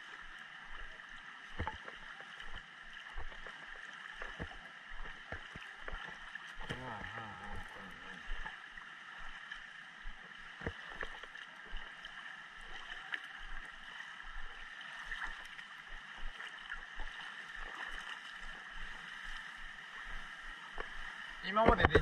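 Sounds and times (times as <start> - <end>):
water sloshing and splashing: 0.0 - 22.0
water thumps and clicks: 1.5 - 8.5, 10.0 - 12.0, 20.1 - 22.0.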